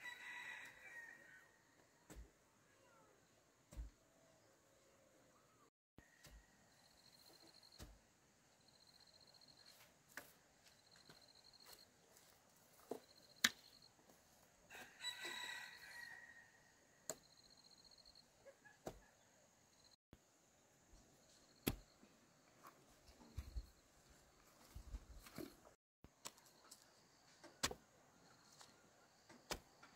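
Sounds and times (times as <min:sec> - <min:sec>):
rooster crowing: 0:00.0 - 0:01.6, 0:14.7 - 0:16.6.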